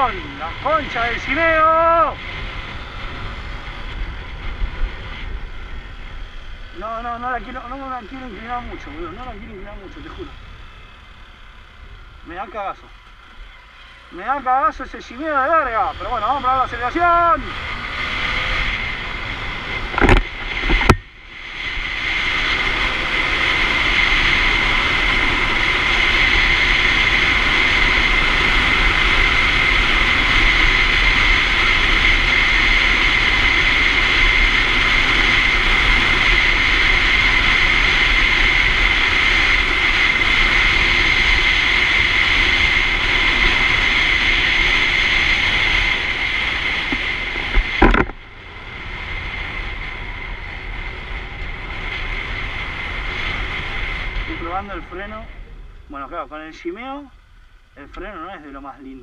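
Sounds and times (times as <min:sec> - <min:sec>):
wind noise: 0:00.0 - 0:12.5, 0:15.3 - 0:58.4
motorcycle engine accelerating: 0:00.0 - 0:57.8.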